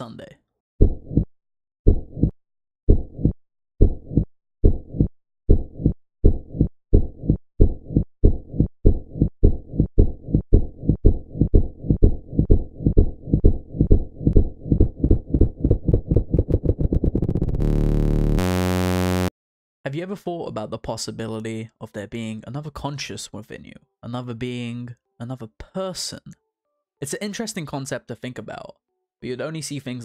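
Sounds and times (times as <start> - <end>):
heartbeat thumps: 0.8 - 1.3, 1.9 - 18.0.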